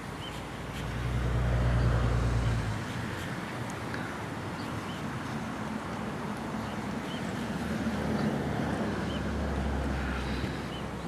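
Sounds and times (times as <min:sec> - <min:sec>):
distant traffic: 0:00.0 - 0:11.0
river water flowing: 0:00.0 - 0:11.0.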